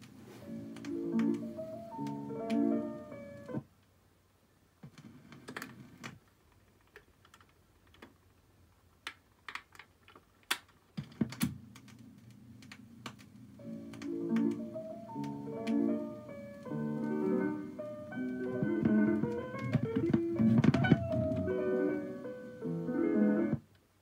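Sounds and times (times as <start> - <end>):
record playing music: 0.0 - 3.6, 13.5 - 23.6
record changer clicks and clunks: 12.6 - 16.1
stylus thump on record: 18.5 - 21.5.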